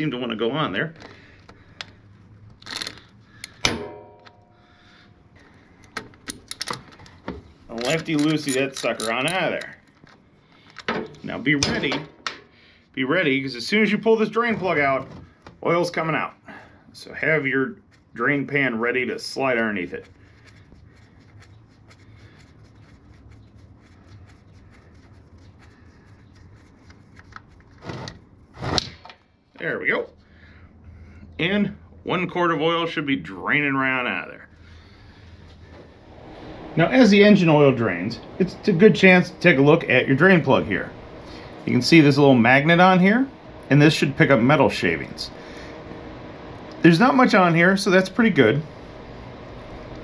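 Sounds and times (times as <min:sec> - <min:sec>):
metallic wrench clank: 0:02.8 - 0:04.6.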